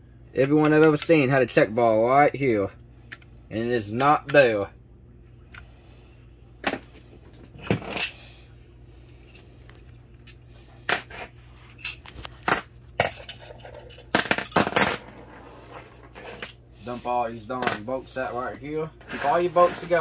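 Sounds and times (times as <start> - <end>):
faint steady hum: 0.0 - 20.0
metal tools and bolts clinking: 7.6 - 8.2, 11.7 - 15.1, 19.2 - 20.0.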